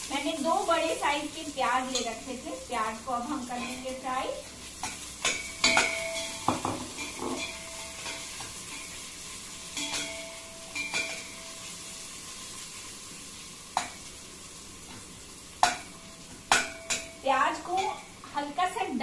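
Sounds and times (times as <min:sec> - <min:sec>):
onions sizzling in hot oil: 0:00.0 - 0:19.0
spoon clinking against pot: 0:04.8 - 0:09.0, 0:09.7 - 0:11.4, 0:16.5 - 0:17.2.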